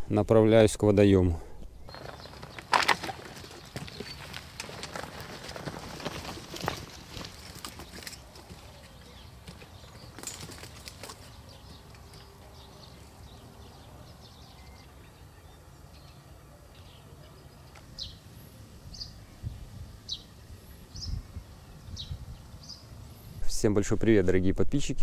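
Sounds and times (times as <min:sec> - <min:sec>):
wind rumbling on microphone: 0:18.7 - 0:23.5.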